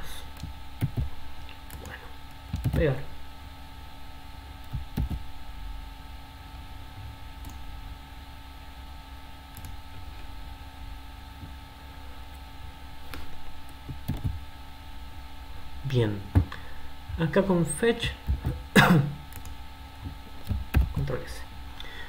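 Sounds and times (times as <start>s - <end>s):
electrical hum: 0.0s - 22.0s
keyboard and mouse clicks: 0.3s - 2.9s, 4.6s - 5.2s, 7.4s - 7.6s, 9.5s - 9.8s, 13.1s - 14.4s, 19.3s - 21.1s.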